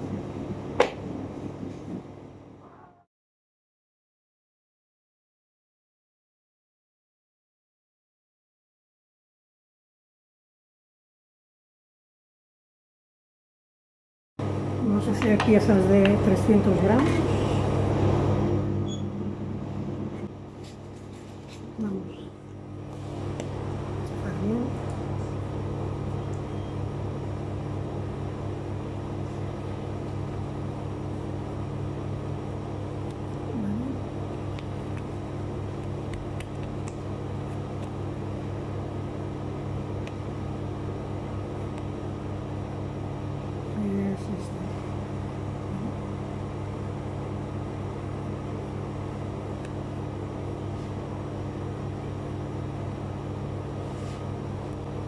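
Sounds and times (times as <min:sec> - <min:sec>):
low machine hum: 0:00.0 - 0:03.1, 0:14.4 - 0:55.0.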